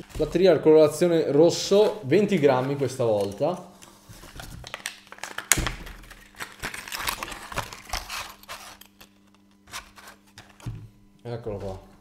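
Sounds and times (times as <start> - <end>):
plastic blister pack crinkling: 4.3 - 10.7.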